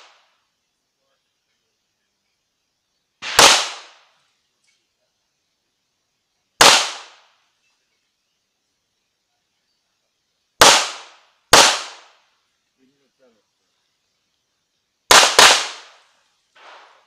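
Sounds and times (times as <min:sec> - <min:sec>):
handgun shots: 0:03.2 - 0:03.9.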